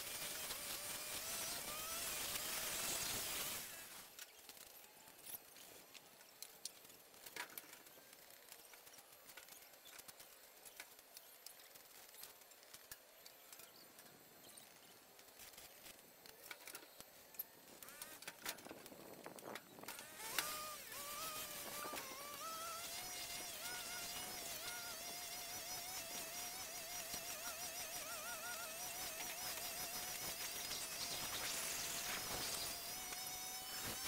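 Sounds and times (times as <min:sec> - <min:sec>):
flying insect buzzing: 0:19.9 - 0:34.0.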